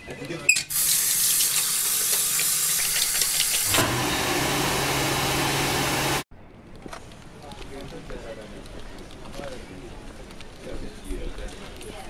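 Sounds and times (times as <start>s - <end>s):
tap water running into sink: 0.7s - 3.9s
electric hand dryer blowing: 0.8s - 6.3s.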